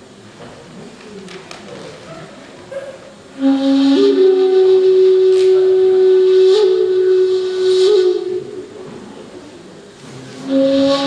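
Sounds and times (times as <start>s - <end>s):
breathy bamboo flute note: 3.3s - 9.6s, 10.4s - 11.0s.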